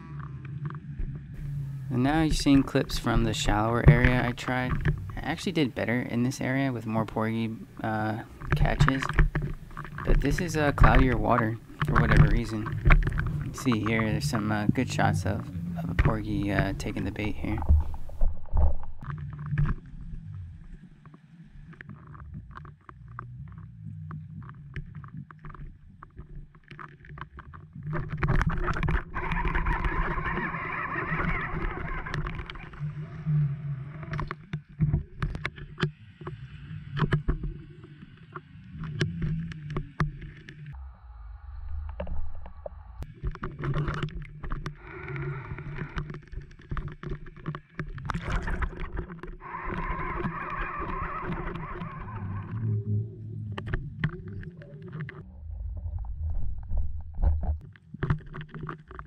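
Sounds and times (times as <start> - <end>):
muffled underwater rumbling: 0.0 - 59.0
sharp clicks and knocks: 2.1 - 5.4, 8.4 - 19.8.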